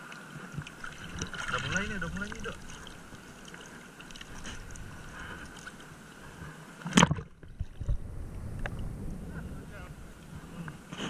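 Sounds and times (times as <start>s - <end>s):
sea water moving: 0.0s - 11.0s
water splash: 0.5s - 5.8s, 6.8s - 8.0s.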